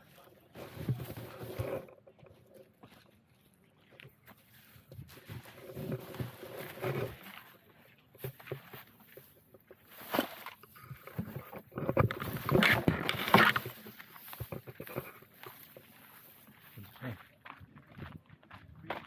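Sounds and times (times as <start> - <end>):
litter rustling and crackling: 8.2 - 16.0.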